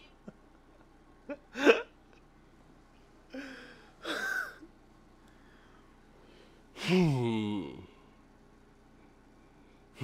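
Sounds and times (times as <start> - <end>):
man gasping with laughter: 3.3 - 4.6.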